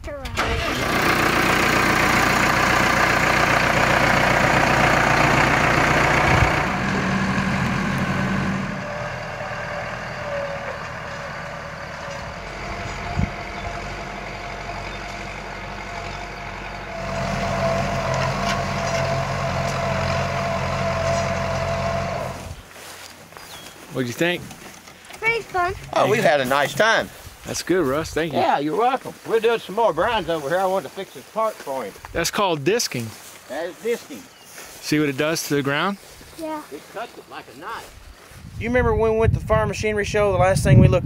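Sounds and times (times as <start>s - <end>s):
tractor engine running: 0.0s - 28.3s.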